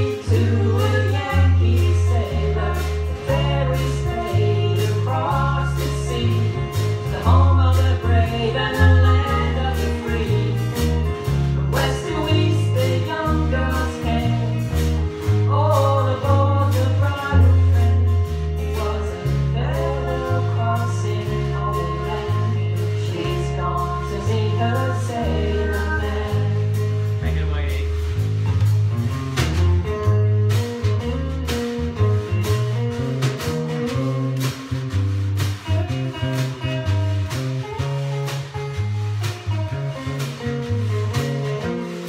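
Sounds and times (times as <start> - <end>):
voices singing: 0.0 - 26.9
deep bass notes: 0.0 - 42.0
drum kit beat: 0.0 - 42.0
guitars: 0.0 - 42.0
live band playing: 0.0 - 42.0.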